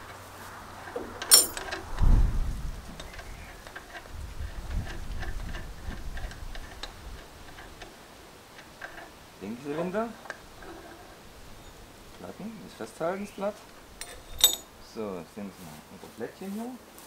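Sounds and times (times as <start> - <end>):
metal clink: 1.2 - 1.8, 14.0 - 14.7.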